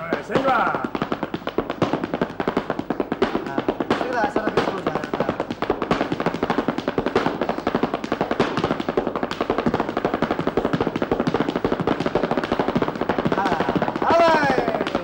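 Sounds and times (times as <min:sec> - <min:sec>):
heeled shoes stamping on stage: 0:00.0 - 0:15.0.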